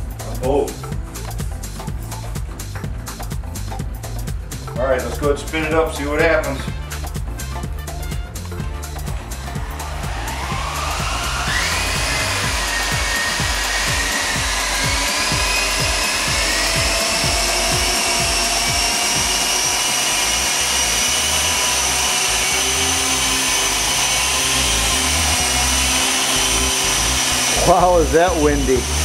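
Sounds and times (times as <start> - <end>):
electric motors whining: 8.4 - 29.0
gusty rotor wash buffeting: 9.3 - 29.0.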